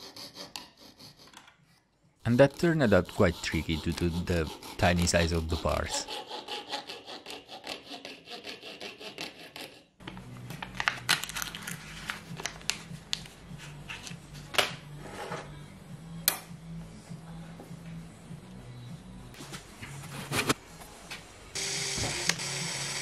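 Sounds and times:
saw cutting wood: 0:00.0 - 0:01.4, 0:02.3 - 0:09.8
background music: 0:02.2 - 0:06.2, 0:10.0 - 0:23.0
plastic sleeve rustling: 0:10.6 - 0:14.1.

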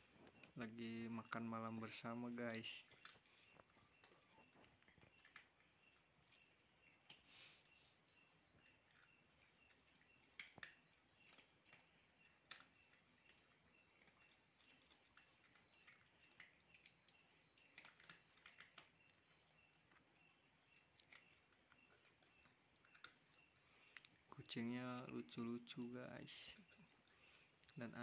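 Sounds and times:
cats chewing dry kibble: 0:00.0 - 0:28.0.

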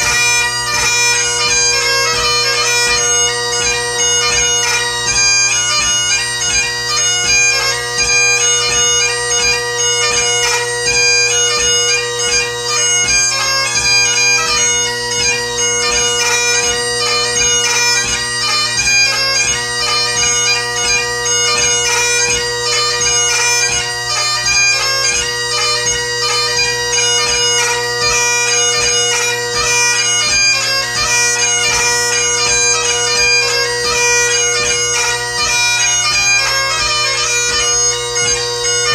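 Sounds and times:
bagpipe playing a march: 0:00.0 - 0:38.9.

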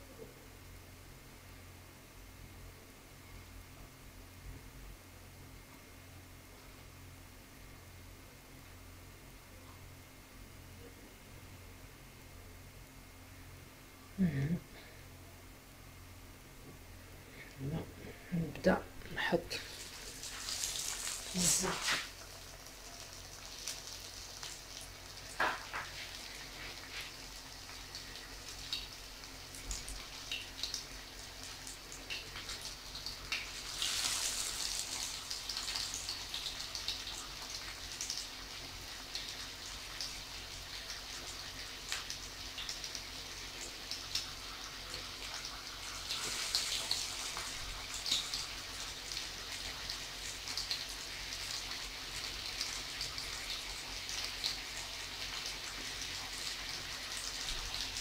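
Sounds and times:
food sizzling in hot oil: 0:19.2 - 0:58.0.

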